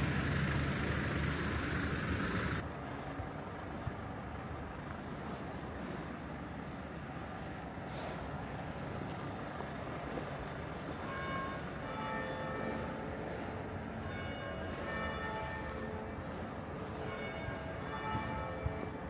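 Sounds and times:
street noise: 0.0 - 19.0
church bells ringing: 10.2 - 19.0.

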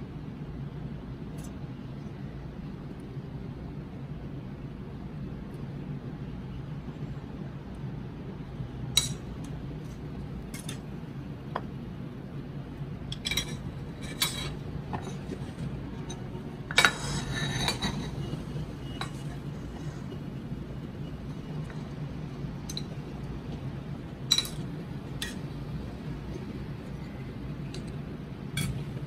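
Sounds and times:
metal tongs clinking on plate: 13.1 - 15.4, 22.6 - 23.0, 24.3 - 25.5, 28.6 - 28.9.

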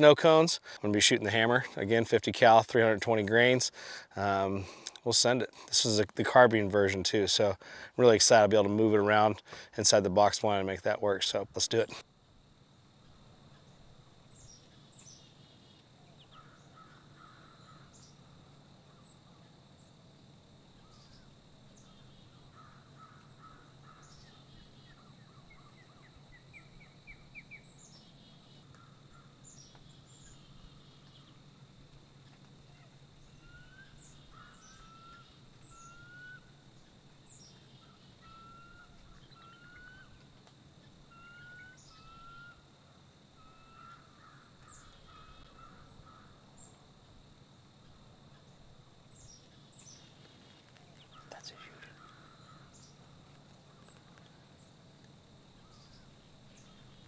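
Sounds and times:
birds chirping: 32.2 - 40.2, 48.3 - 54.8
bird trill: 33.2 - 40.2, 41.1 - 42.6.

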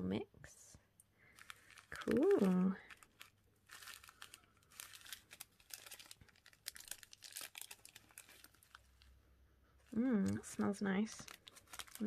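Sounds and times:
plastic bag crinkling: 1.2 - 9.2, 9.8 - 12.0.

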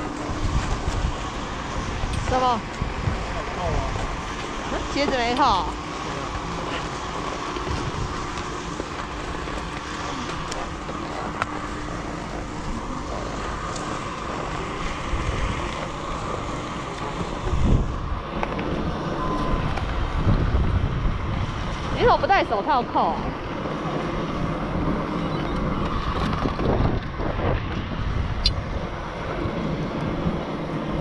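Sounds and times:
chairlift machinery rumbling: 0.0 - 31.0
wind buffeting microphone: 0.0 - 31.0.

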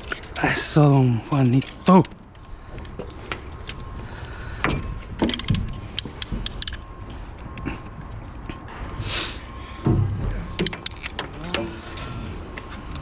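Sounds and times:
metallic clicks and rattles of strap tensioner: 5.2 - 6.8, 10.6 - 11.3.

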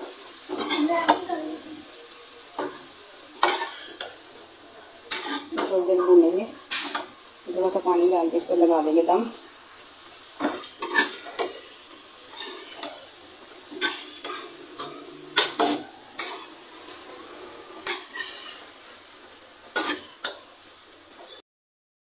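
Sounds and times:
sizzle of frying: 0.0 - 21.4
metal ladle scraping a pot: 13.7 - 18.7.

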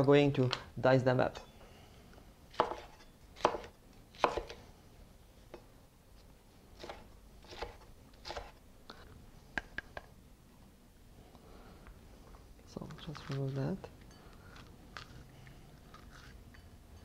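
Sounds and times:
knife cutting on wooden board: 6.8 - 8.6.

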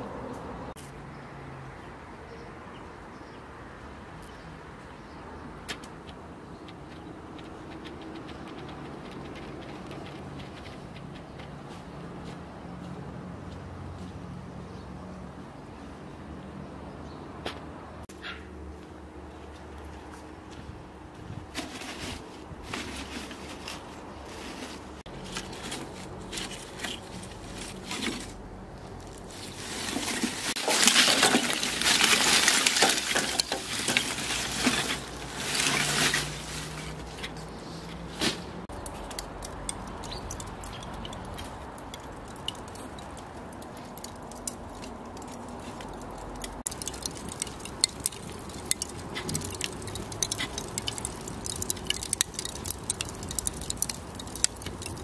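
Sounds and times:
paper kindling crackling: 21.6 - 37.3
charcoal clattering into metal grill: 29.4 - 36.8.

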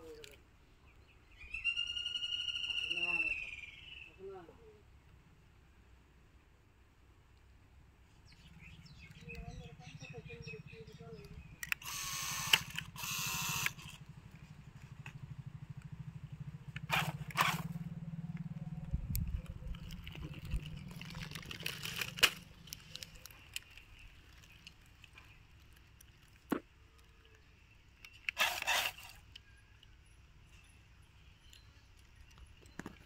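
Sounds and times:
toy car electric motor buzzing: 11.6 - 14.0, 16.9 - 17.8, 28.3 - 29.4
dry leaves crackling under tyres: 11.9 - 27.2.

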